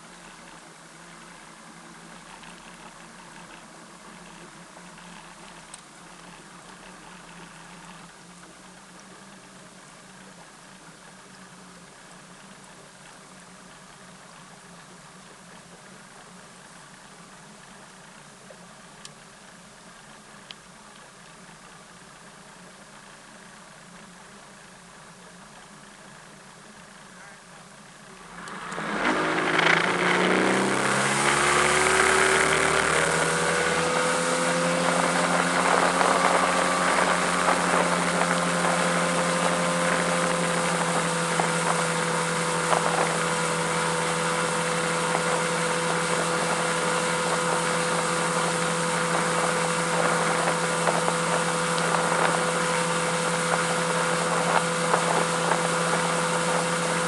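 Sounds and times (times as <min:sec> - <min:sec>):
outboard motor running: 0:00.0 - 0:57.0
wind: 0:00.0 - 0:57.0
rushing water: 0:28.6 - 0:57.0.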